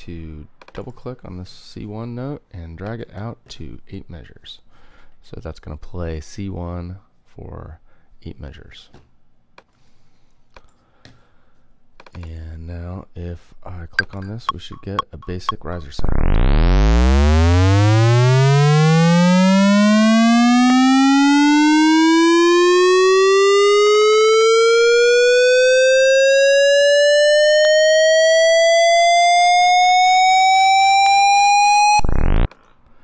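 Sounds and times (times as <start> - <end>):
rising synth tone: 16.0 - 32.5.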